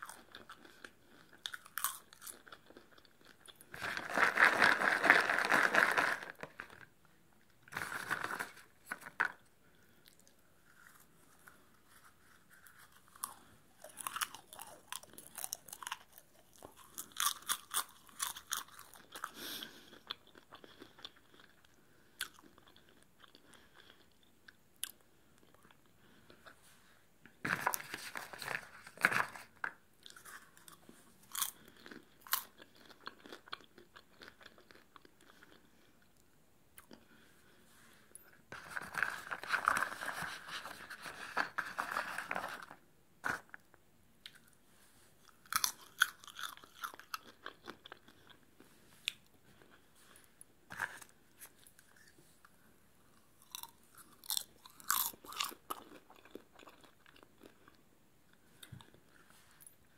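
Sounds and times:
popcorn crunching: 0.0s - 6.9s, 7.6s - 9.5s, 10.1s - 24.2s, 27.4s - 35.6s, 45.3s - 48.4s, 53.4s - 57.8s
hand rustling popcorn in tub: 3.8s - 6.9s.

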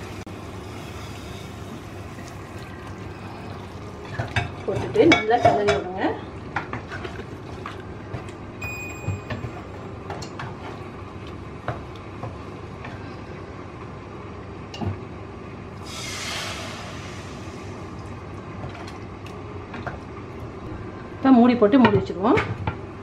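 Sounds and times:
brief hiss: 15.8s - 17.6s.

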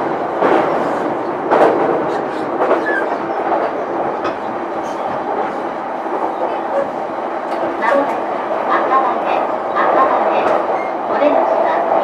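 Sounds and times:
train wheels rumbling on rail: 0.0s - 12.0s
clacks over rail joints: 0.4s - 5.5s.

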